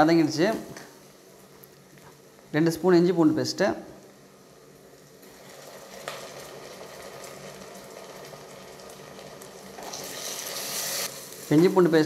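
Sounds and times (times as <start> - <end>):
food sizzling in oil: 4.6 - 12.0.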